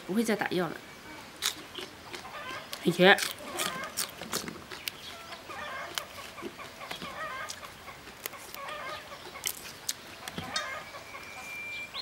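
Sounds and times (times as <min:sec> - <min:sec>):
hens clucking: 0:01.7 - 0:02.8, 0:03.4 - 0:11.5.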